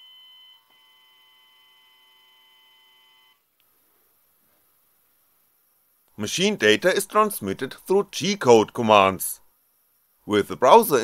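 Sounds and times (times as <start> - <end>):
small motor high whine: 0.0 - 3.4.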